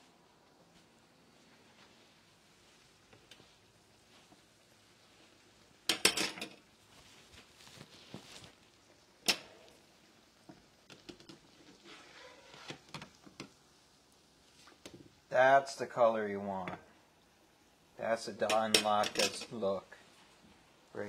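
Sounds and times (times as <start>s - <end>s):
food sizzling in oil: 1.3s - 21.0s
metal utensils clattering on pan: 5.9s - 6.6s, 9.2s - 9.6s, 18.4s - 19.5s.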